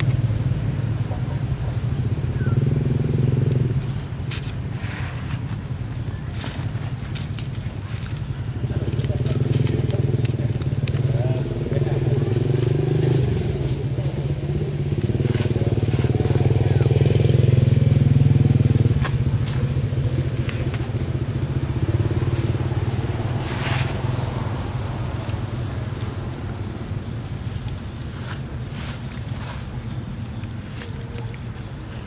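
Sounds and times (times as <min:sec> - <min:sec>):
rustle: 0:02.2 - 0:32.0.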